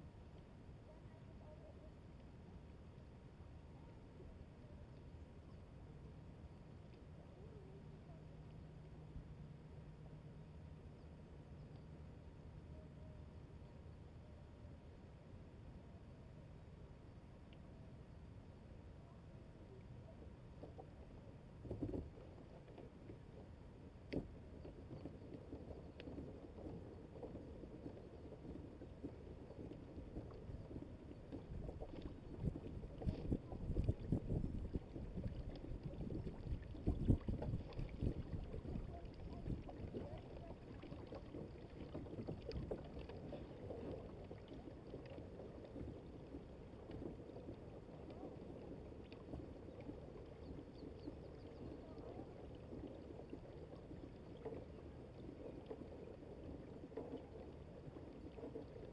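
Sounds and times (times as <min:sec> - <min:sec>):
water rushing along kayak hull: 0:20.5 - 0:58.9.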